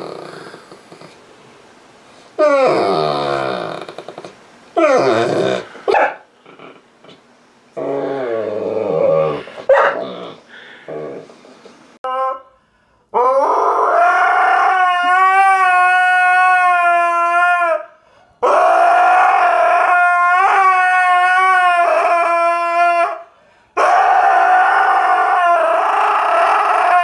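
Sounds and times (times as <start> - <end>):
husky howling: 13.2 - 27.0.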